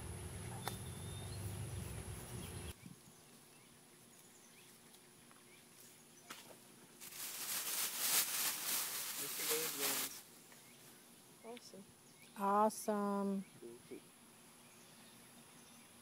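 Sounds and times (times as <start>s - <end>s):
bark tinder rustling in hands: 7.0s - 10.2s
fire crackling and hissing: 7.0s - 10.3s.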